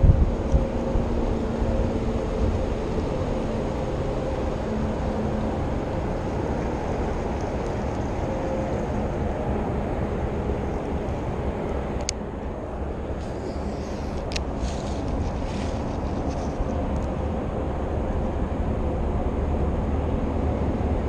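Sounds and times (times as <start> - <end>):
faint hum: 0.0 - 21.0
wind buffeting microphone: 0.0 - 21.0.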